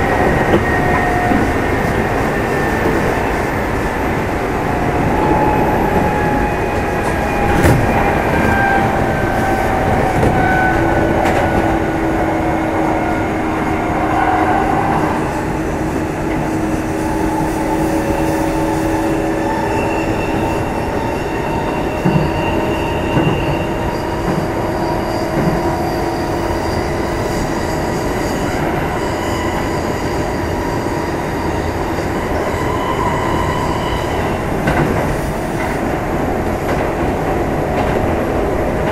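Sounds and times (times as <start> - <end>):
train wheels droning on rail: 0.0 - 38.9.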